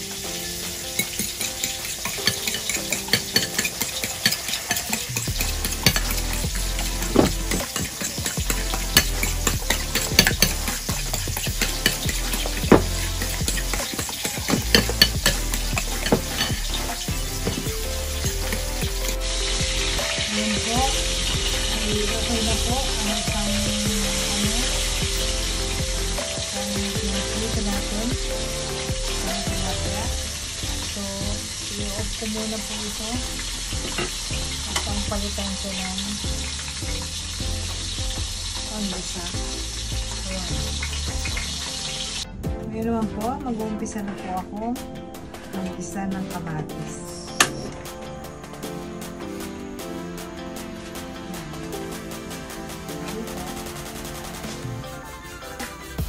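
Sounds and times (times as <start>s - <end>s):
garlic sizzling in hot oil: 0.0s - 42.2s
soft background music: 0.0s - 56.0s
fork beating eggs in a bowl: 1.0s - 19.4s.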